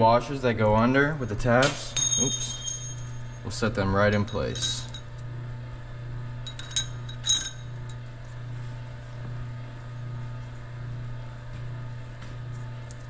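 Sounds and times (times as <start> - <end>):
steady low hum: 0.0 - 13.0
metal washers clinking: 1.3 - 5.2, 6.4 - 7.9.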